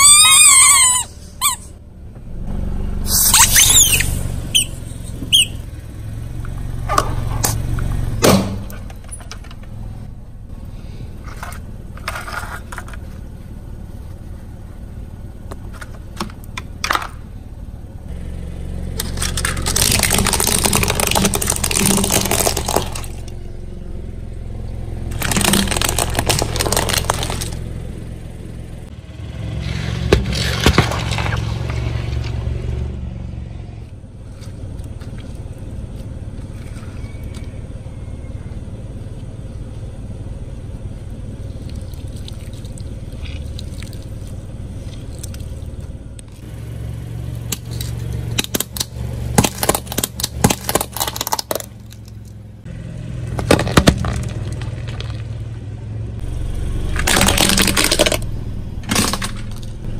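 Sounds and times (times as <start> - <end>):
car engine running: 0.0 - 59.9
plastic cracking under tyre: 19.0 - 23.4, 25.1 - 27.7, 30.1 - 31.8, 47.5 - 52.4, 53.3 - 55.5, 56.9 - 59.9.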